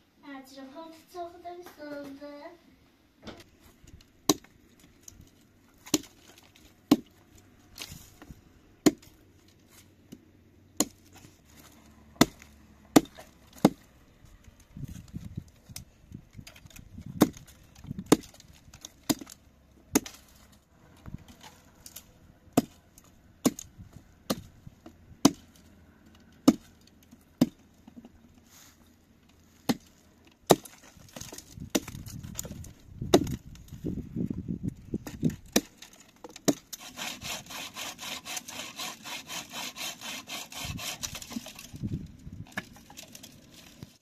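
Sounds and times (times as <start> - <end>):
hatchet chopping wood: 4.3 - 4.5, 5.8 - 7.2, 8.8 - 9.2, 10.8 - 11.2, 12.1 - 13.9, 16.4 - 20.3, 21.3 - 24.5, 25.2 - 25.6, 26.4 - 28.0, 29.6 - 33.4, 35.0 - 41.8.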